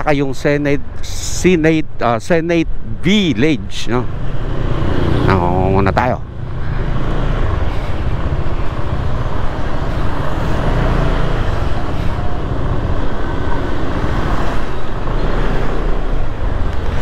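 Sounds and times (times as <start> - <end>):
road and traffic noise: 0.0 - 17.0.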